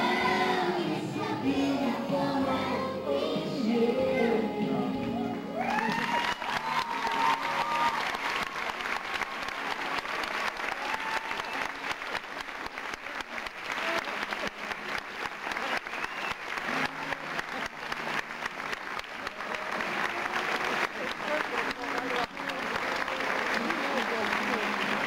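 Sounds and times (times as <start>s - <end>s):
audience applauding: 5.6s - 25.0s.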